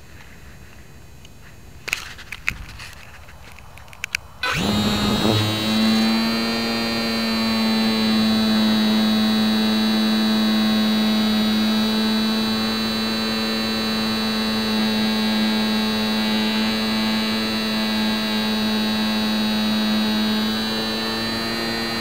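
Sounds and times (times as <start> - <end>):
model plane motor buzzing: 4.4 - 22.0.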